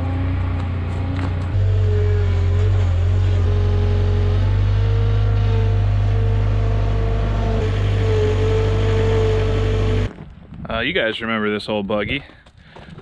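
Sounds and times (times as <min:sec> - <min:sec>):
loader engine running: 0:00.0 - 0:10.2.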